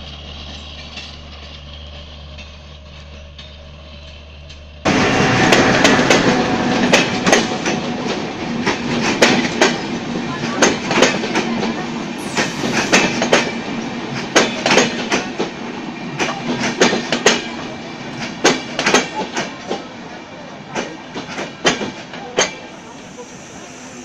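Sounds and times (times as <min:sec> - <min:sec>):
train wheels clacking over rail joints: 0:00.0 - 0:19.9, 0:20.7 - 0:24.0
train rumble: 0:00.0 - 0:24.0.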